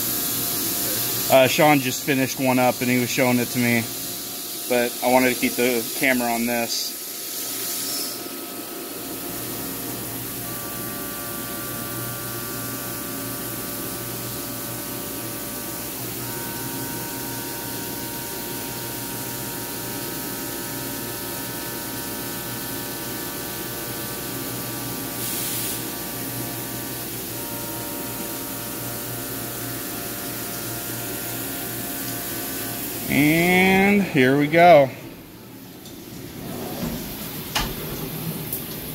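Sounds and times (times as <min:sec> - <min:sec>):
coolant spray hiss: 0:00.0 - 0:11.8, 0:23.9 - 0:34.3.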